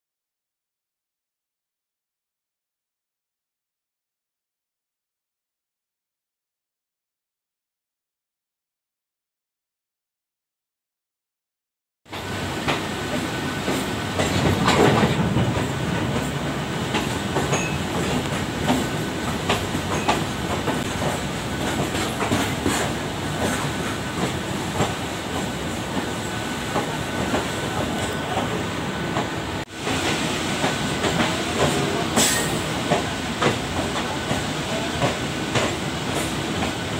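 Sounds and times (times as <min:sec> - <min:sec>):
wheels clacking over rail joints: 0:12.1 - 0:26.1
freight train rumble: 0:12.1 - 0:36.9.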